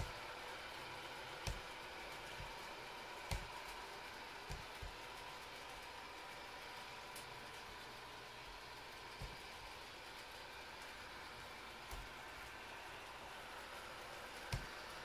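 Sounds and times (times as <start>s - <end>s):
room hiss: 0.0s - 15.0s.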